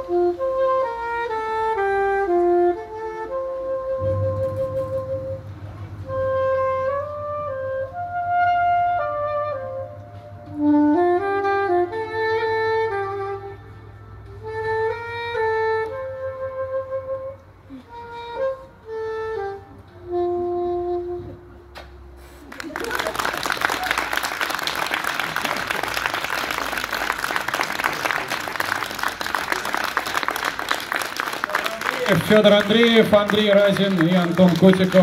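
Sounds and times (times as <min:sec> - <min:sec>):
soprano saxophone melody: 0:00.0 - 0:22.2
low sustained accompaniment: 0:01.9 - 0:17.4.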